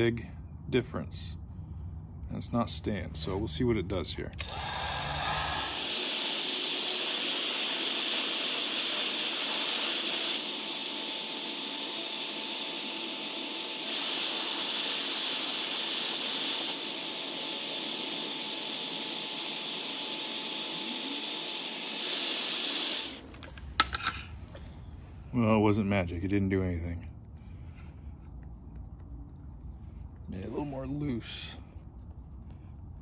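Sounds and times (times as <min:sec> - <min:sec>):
heat gun fan blowing: 0:02.8 - 0:24.7.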